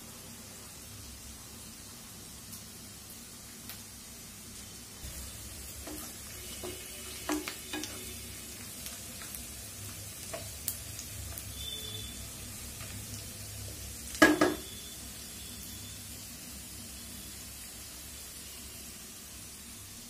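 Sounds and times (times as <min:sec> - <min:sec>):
onions sizzling in oil: 0:00.0 - 0:20.0
wooden spoon knocking pan: 0:05.8 - 0:08.0, 0:14.2 - 0:14.7.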